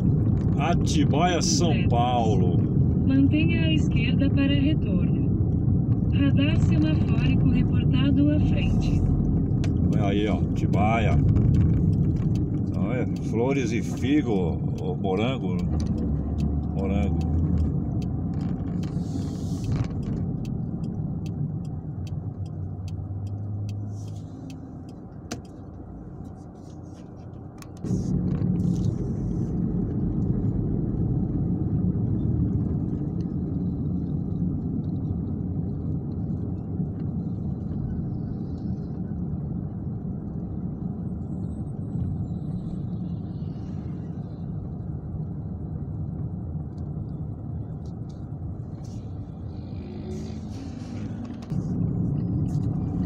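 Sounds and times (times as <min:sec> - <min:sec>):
car cabin road rumble: 0:00.0 - 0:53.0
light evenly spaced ticks: 0:09.6 - 0:27.9.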